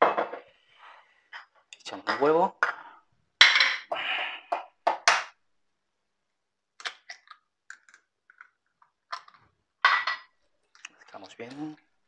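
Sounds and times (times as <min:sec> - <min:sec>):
eggshell crackling: 0:06.7 - 0:09.5.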